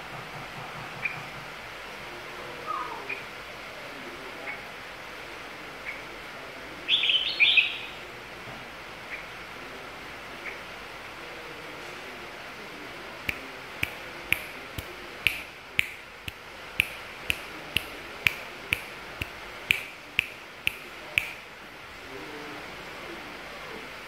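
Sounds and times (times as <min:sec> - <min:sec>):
fingers snapping: 0:13.3 - 0:21.4.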